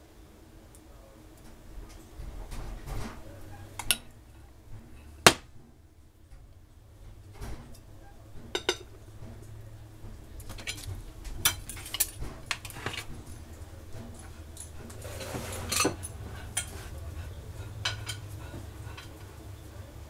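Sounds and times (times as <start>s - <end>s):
low steady hum: 0.0s - 20.0s
plate and cutlery clinking: 7.4s - 9.5s, 10.4s - 19.3s.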